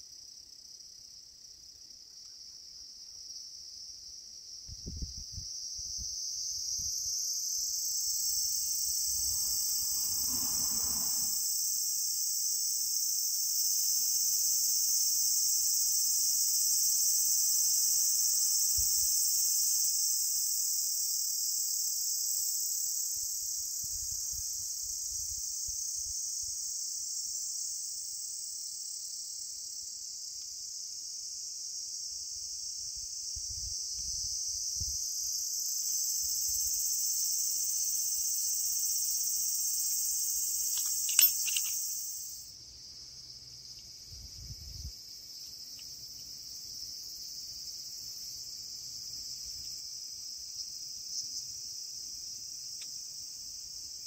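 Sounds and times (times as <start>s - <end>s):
insects chirring: 0.0s - 54.0s.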